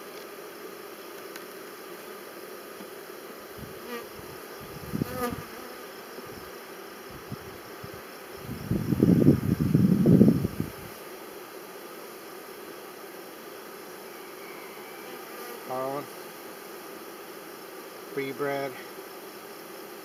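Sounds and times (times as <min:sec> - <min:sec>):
honeybees buzzing: 0:00.0 - 0:20.0.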